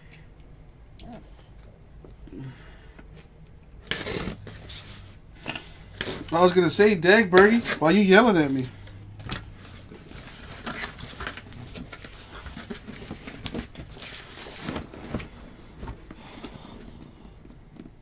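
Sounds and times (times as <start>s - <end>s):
cardboard and wrapping rustling: 3.9s - 18.0s.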